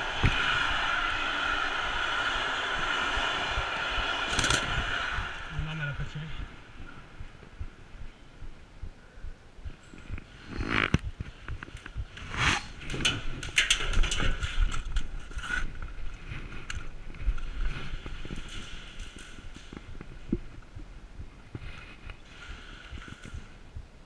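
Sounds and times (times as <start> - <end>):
airsoft guns firing: 4.3 - 5.0.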